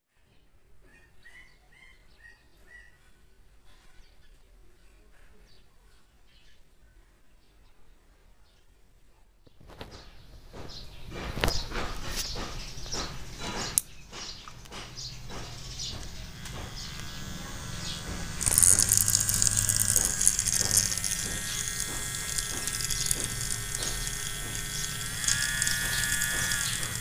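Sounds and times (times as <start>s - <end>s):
tattoo machine motor whirring: 10.5s - 27.0s.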